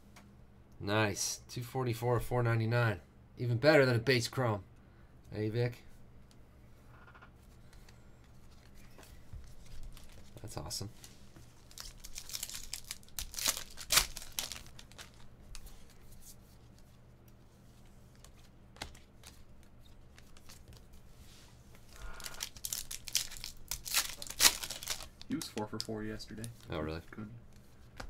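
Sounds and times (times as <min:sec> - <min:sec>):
cards handling: 0:07.7 - 0:21.0, 0:21.7 - 0:28.0
foil ripping: 0:11.6 - 0:15.2, 0:22.0 - 0:26.6
foil wrapper crinkling: 0:11.6 - 0:15.6, 0:21.9 - 0:26.8.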